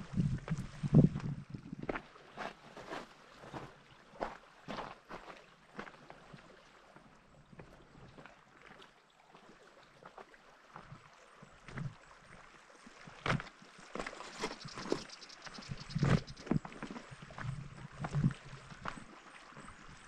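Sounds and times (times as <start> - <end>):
footsteps crunching on stones: 13.3 - 19.0.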